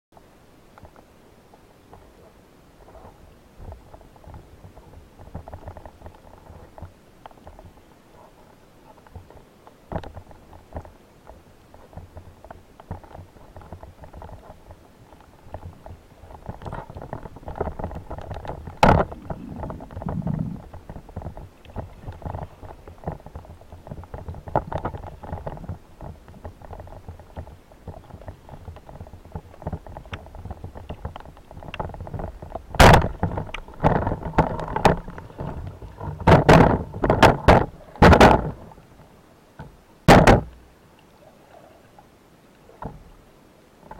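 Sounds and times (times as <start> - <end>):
faint crackling: 0.2 - 39.8
rushes of water: 2.1 - 39.4
underwater rumble: 15.4 - 39.2
sharp knocks: 40.1 - 40.5.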